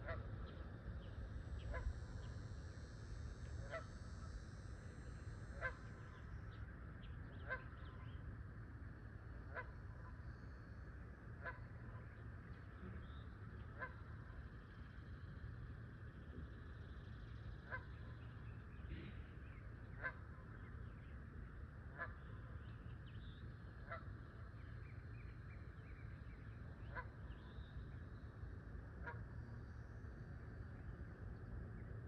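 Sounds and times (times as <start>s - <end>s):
goose honking: 29.0s - 29.2s.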